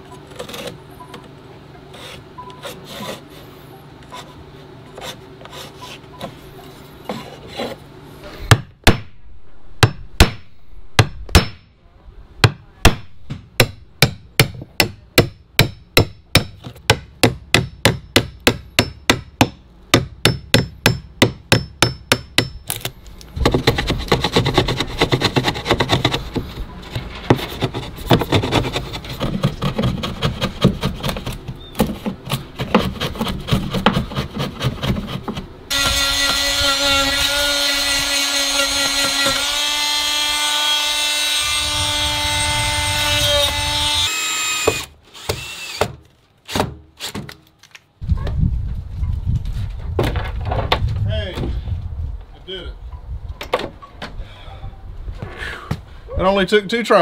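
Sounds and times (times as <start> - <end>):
chisel scraping and chipping wood: 0.0 - 7.9, 20.3 - 40.2
hammer striking chisel: 9.8 - 11.7, 12.4 - 22.7.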